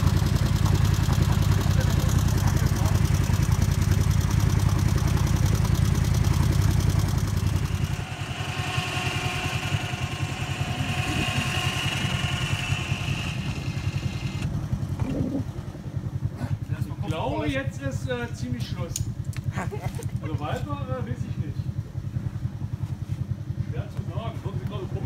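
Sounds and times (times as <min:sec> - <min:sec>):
high engine whine: 0:00.0 - 0:19.5
vehicle engine throbbing: 0:00.0 - 0:25.0.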